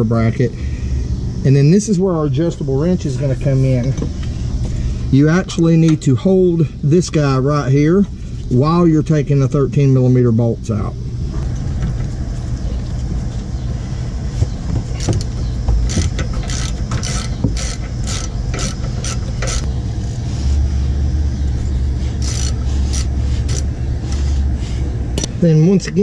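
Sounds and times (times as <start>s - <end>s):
socket ratchet clicking: 15.9s - 19.8s, 22.2s - 24.2s.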